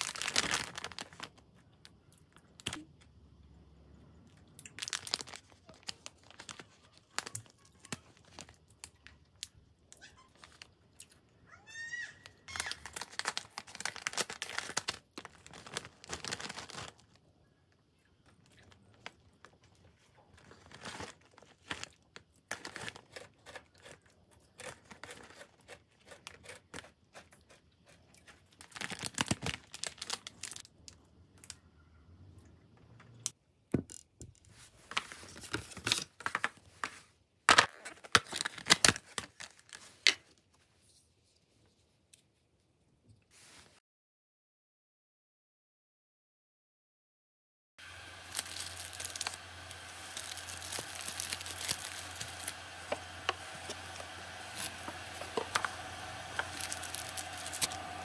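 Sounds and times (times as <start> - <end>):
bag tearing open: 0.0 - 1.4, 4.8 - 7.4, 12.5 - 17.1, 28.6 - 30.6, 48.2 - 58.0
plastic packets crinkling: 0.0 - 1.6, 4.6 - 9.2, 12.5 - 17.2, 20.3 - 24.0, 28.2 - 30.8, 47.8 - 58.0.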